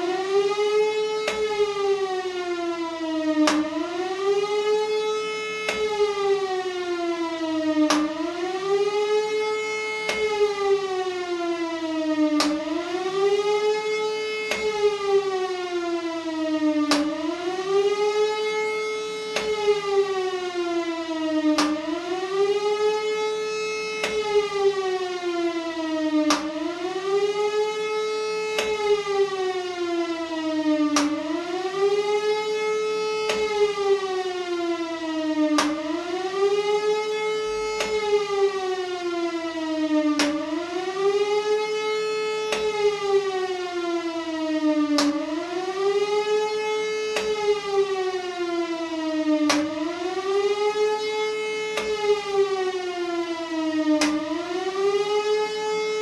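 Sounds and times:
electric motor siren wailing: 0:00.0 - 0:56.0
sharp click: 0:47.2 - 0:47.4.

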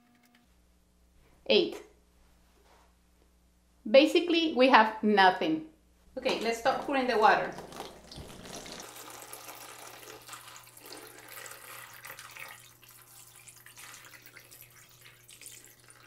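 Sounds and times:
water splashing onto gel: 0:06.4 - 0:10.9
water pouring into a bowl: 0:07.5 - 0:16.0.

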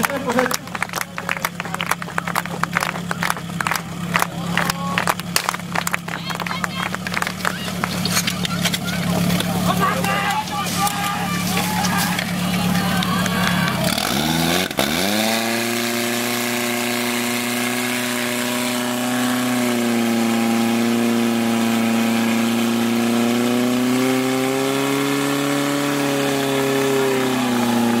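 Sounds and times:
fire pump petrol engine revving: 0:00.0 - 0:28.0.

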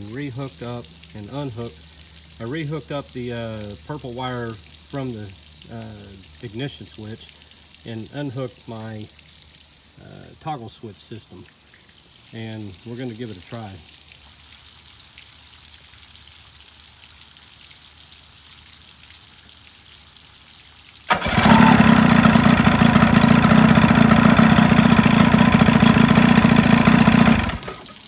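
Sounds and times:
running water hiss: 0:00.0 - 0:28.0
outboard motor running: 0:21.1 - 0:27.8.

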